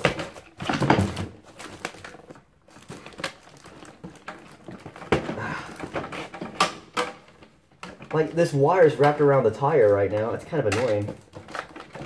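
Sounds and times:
cardboard box rustling and crinkling: 0.0s - 6.6s.

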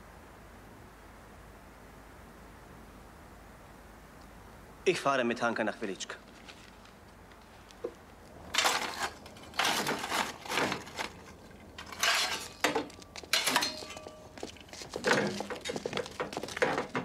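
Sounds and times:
shovel scraping coal: 8.5s - 16.8s
coal lumps clattering: 8.5s - 17.0s.

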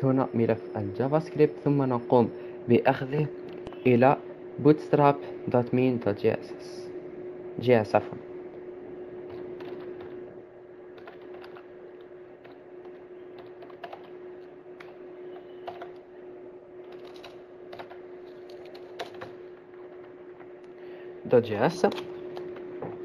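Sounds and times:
steady low hum: 0.0s - 23.0s
keyboard keys clicking: 11.0s - 11.6s, 12.4s - 14.1s, 14.8s - 16.0s, 16.9s - 19.4s.

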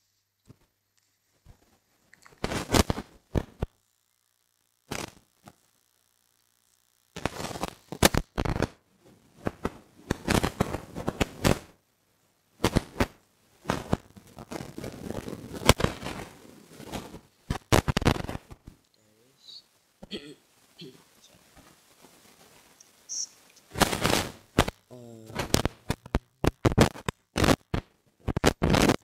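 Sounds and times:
microphone handling noise: 7.2s - 8.8s, 12.6s - 18.8s, 20.0s - 29.0s.

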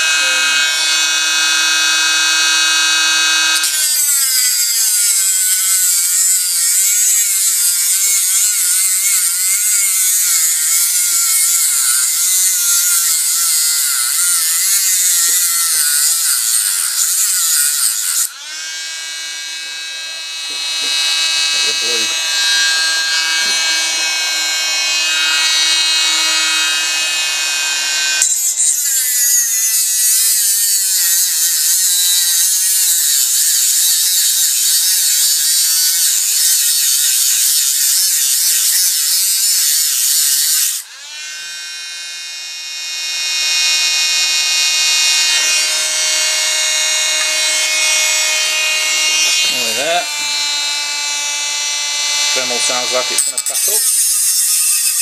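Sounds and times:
cutting disc cutting plastic: 0.0s - 18.7s, 28.2s - 40.9s, 52.2s - 55.0s
rotary tool motor whine: 0.0s - 55.0s.

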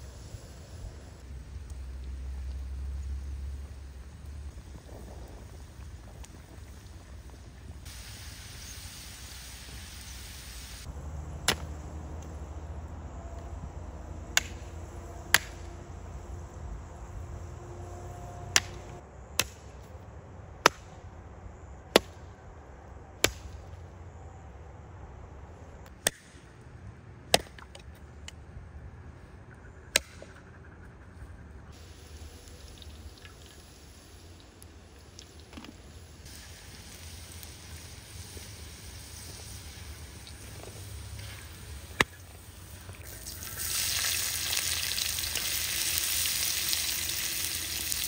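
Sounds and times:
steady low rumble: 0.0s - 8.4s, 10.8s - 27.3s
sharp chopping strikes: 11.4s - 11.8s, 15.3s - 15.6s, 18.5s - 18.8s, 19.4s - 19.8s, 20.6s - 21.0s, 21.9s - 22.2s, 25.9s - 26.4s, 27.3s - 27.8s, 29.9s - 30.3s.

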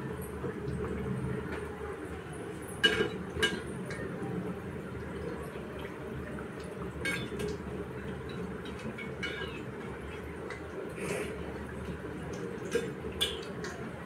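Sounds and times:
food deep-frying in oil: 0.0s - 14.0s
metal spoon clinking on pan: 7.0s - 7.5s, 8.7s - 9.6s, 13.2s - 13.5s.

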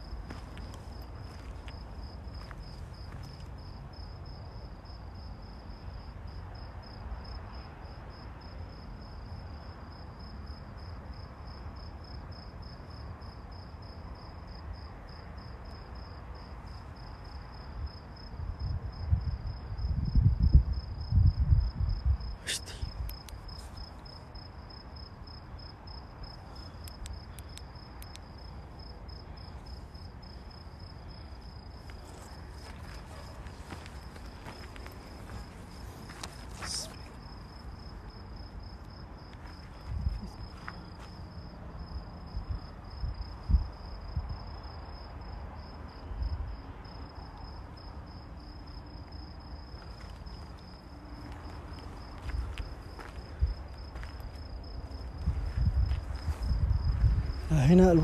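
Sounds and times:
cricket chirping: 0.0s - 58.0s
sharp click: 26.8s - 28.2s.

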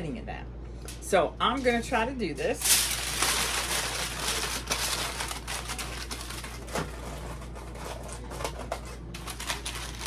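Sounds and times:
aluminum foil crumpling: 2.6s - 10.0s.

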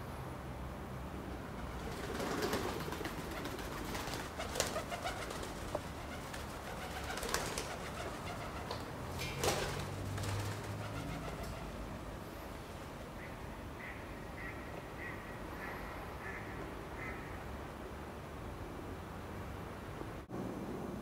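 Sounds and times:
pigeons cooing: 1.8s - 11.9s.

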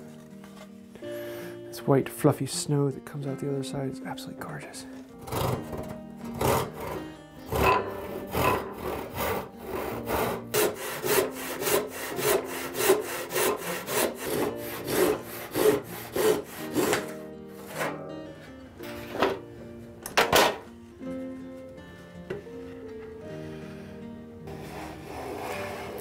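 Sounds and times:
hand saw ripping wood: 5.2s - 18.1s, 24.5s - 26.0s.

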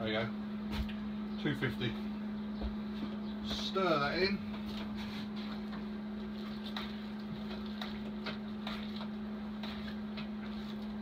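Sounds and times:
paddle stirring liquid: 4.5s - 11.0s.

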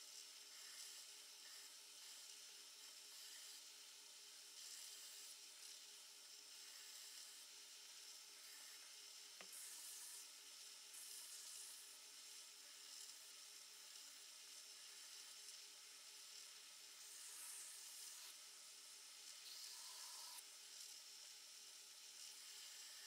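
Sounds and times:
belt grinder hissing: 8.4s - 10.3s, 17.0s - 18.4s, 19.3s - 20.4s.

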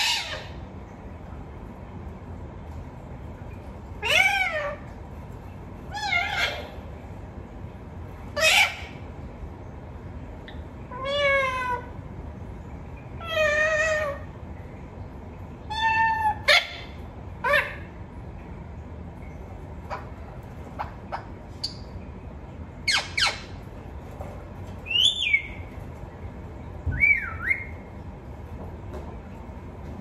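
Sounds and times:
parakeet calling: 0.0s - 0.6s, 4.0s - 5.0s, 5.9s - 6.9s, 8.3s - 9.2s, 10.4s - 12.0s, 13.1s - 14.4s, 15.6s - 18.0s, 19.8s - 22.0s, 22.8s - 23.7s, 24.8s - 25.8s, 26.9s - 27.9s.

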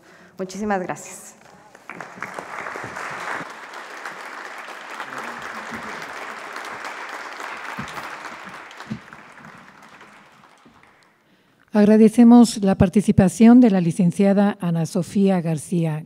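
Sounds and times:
many hands clapping: 1.4s - 11.4s.

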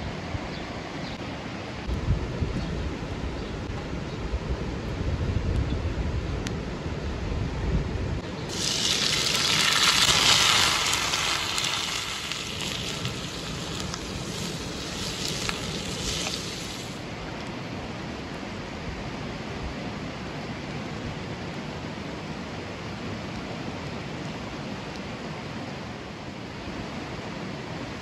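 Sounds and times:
onions sizzling in hot oil: 8.4s - 17.0s
river water rushing: 8.5s - 17.1s.

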